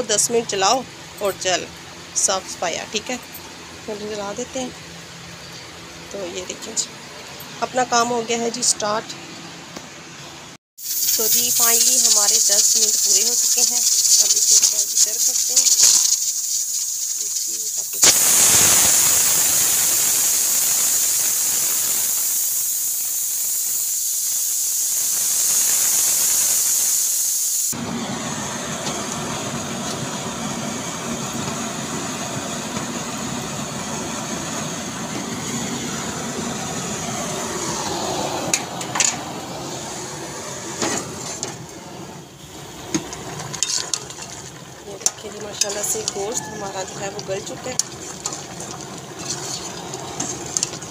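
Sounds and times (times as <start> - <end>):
pressure cooker steam hissing: 10.8 - 50.9.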